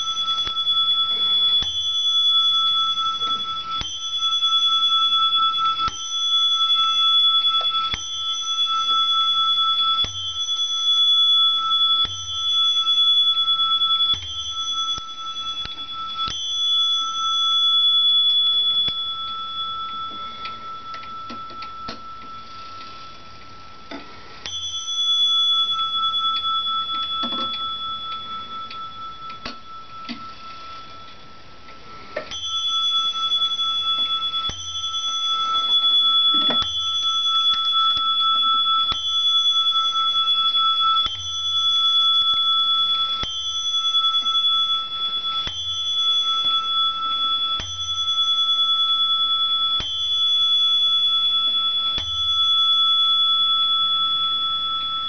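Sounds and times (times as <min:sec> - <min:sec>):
clock bell striking: 0:24.5 - 0:31.1.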